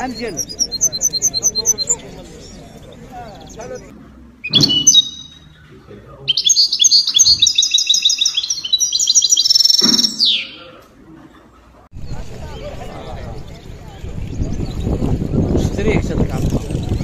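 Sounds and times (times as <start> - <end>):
songbird chirps and trills: 0.0 - 10.8.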